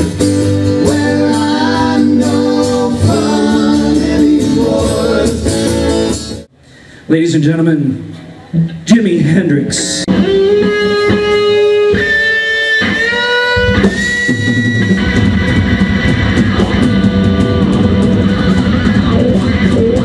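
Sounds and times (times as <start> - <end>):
bass and drums: 0.0 - 6.5, 9.9 - 20.0
electric guitar held notes: 10.0 - 20.0.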